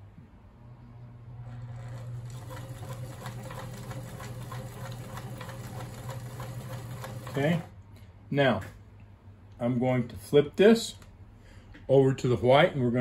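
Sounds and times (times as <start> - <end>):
sewing machine motor humming: 1.1 - 7.8
sewing machine needle ticking: 1.8 - 7.7.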